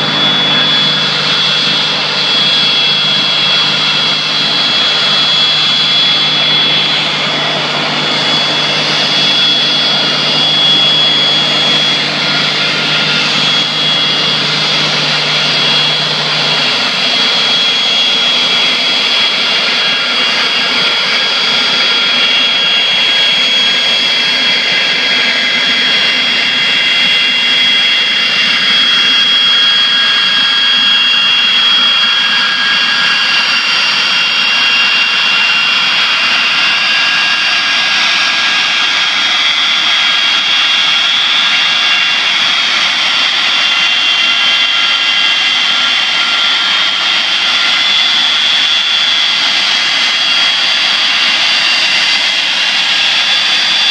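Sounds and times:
jet engine whine: 0:00.0 - 0:53.9
rushing jet noise: 0:00.0 - 0:53.9.

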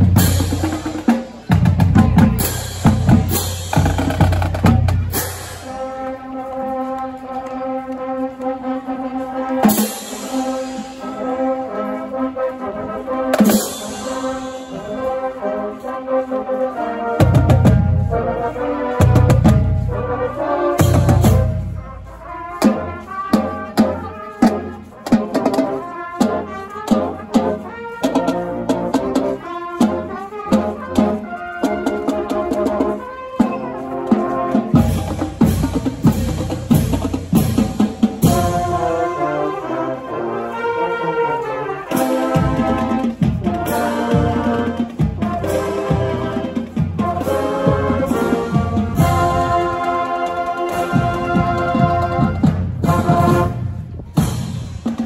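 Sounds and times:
marching band playing: 0:00.0 - 0:55.0.

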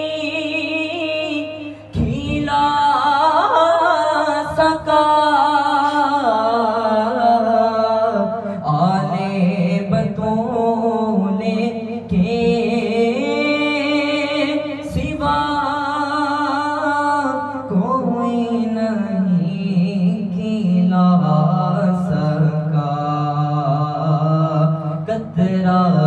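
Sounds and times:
man singing unaccompanied: 0:00.0 - 0:26.0
singer breathing: 0:01.6 - 0:02.0.

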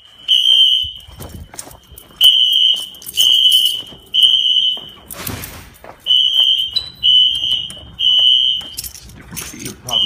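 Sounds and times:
fire alarm horns beeping: 0:00.0 - 0:05.3, 0:06.0 - 0:09.0, 0:09.8 - 0:10.0.

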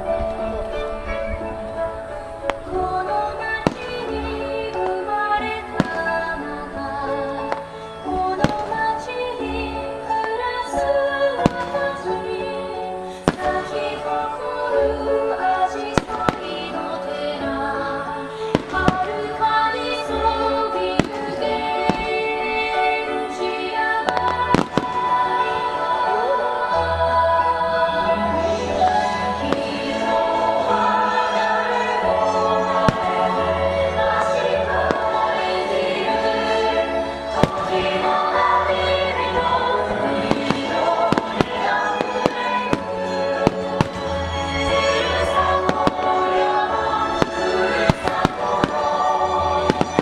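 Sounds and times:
firework shells bursting: 0:02.5 - 0:10.5, 0:13.1 - 0:14.7, 0:18.4 - 0:25.9, 0:28.9 - 0:50.0
loud music: 0:23.0 - 0:50.0.

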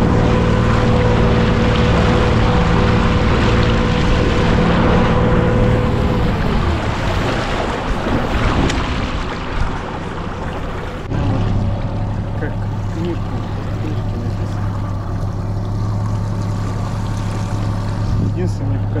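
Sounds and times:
wind on microphone: 0:00.0 - 0:11.8
boat motor running: 0:00.0 - 0:19.0
water washing along hull: 0:00.0 - 0:19.0.

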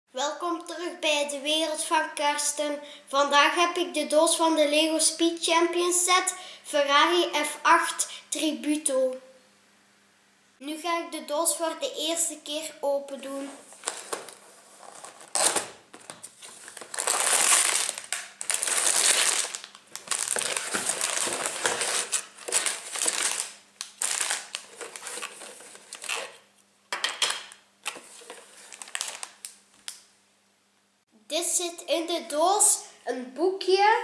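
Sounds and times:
plastic bags rustling: 0:13.4 - 0:26.4, 0:27.2 - 0:30.0.

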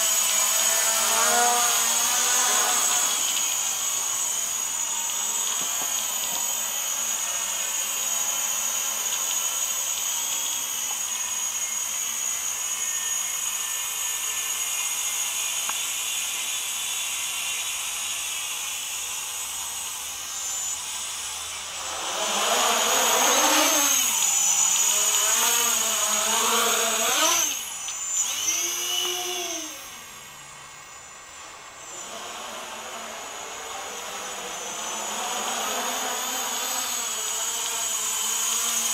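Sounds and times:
drone motors whining: 0:00.0 - 0:38.9.

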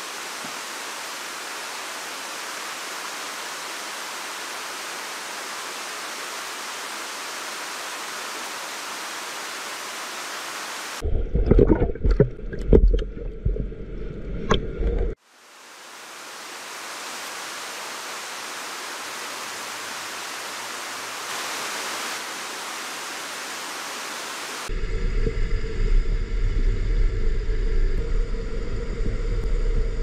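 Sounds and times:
muffled underwater rumble: 0:11.0 - 0:15.2, 0:24.7 - 0:30.0
sharp underwater knocks: 0:11.2 - 0:13.6.

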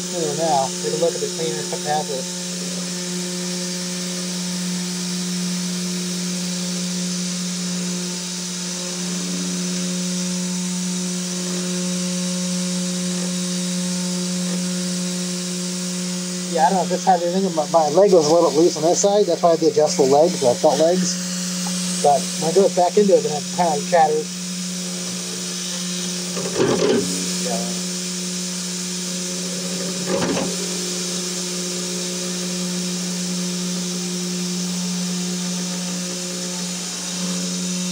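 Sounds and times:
cnc spindle whine cutting metal: 0:00.0 - 0:37.9
cutter chatter: 0:16.5 - 0:24.2, 0:27.4 - 0:27.8.

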